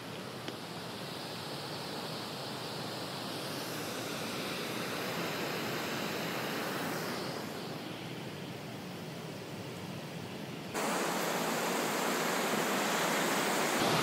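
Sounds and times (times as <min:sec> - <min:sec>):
water rushing over weir: 0:10.8 - 0:14.0.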